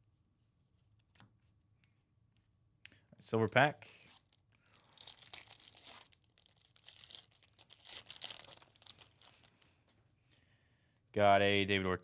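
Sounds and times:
foil pack tearing and crinkling: 0:04.2 - 0:09.6.

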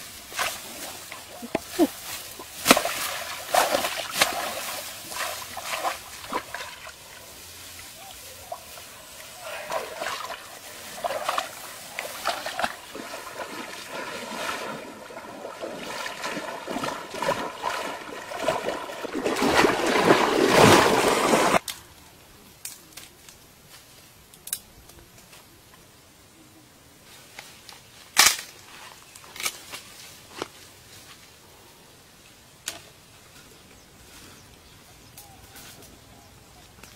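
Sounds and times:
water splashing from wading: 0:00.2 - 0:21.6.

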